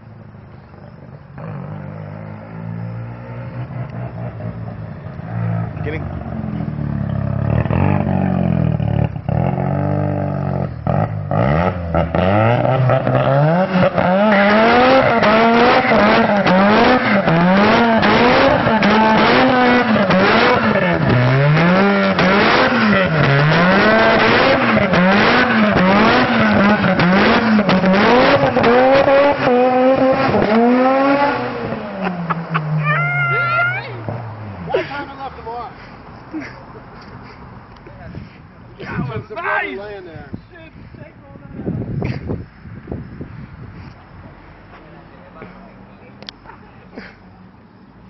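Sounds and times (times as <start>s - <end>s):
car engine revving: 1.0s - 34.8s
tyres squealing: 32.6s - 34.2s.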